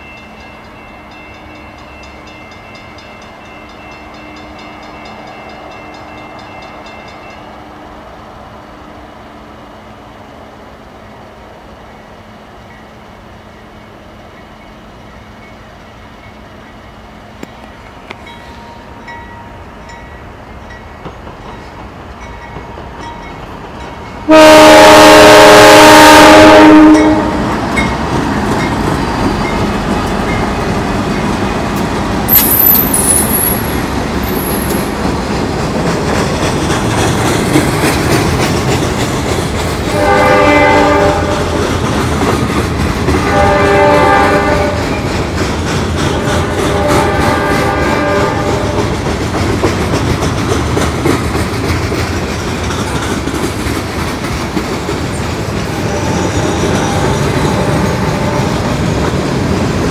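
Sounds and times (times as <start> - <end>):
wheels rumbling on rail: 0.0 - 59.9
train horn blast: 24.3 - 27.5, 39.9 - 41.6, 43.2 - 45.0, 46.2 - 48.8, 55.8 - 58.6
high wheel squeal: 32.3 - 34.9.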